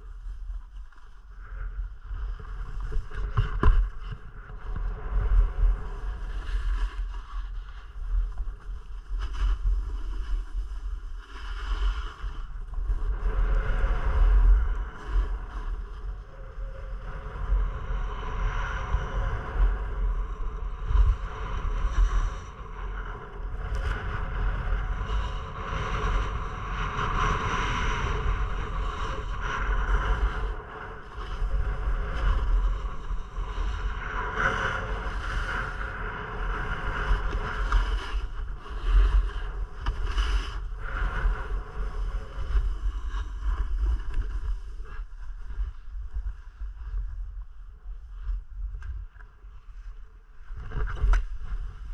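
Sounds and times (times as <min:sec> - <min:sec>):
wind buffeting microphone: 0:00.0 - 0:51.9.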